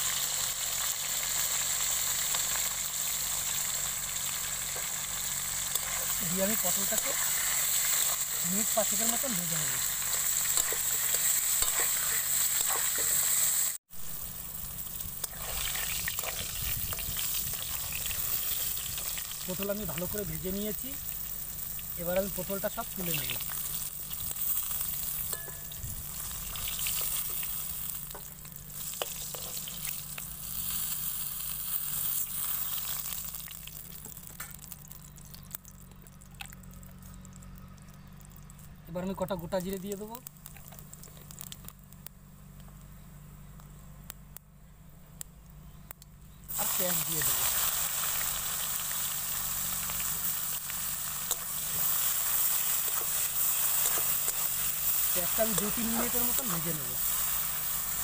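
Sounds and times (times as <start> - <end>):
vegetables sizzling in hot oil: 0.0 - 37.6, 38.4 - 41.7, 46.5 - 58.0
sharp crackle: 0.0 - 58.0
spatula clinking and scraping pan: 10.1 - 13.2, 25.2 - 25.8.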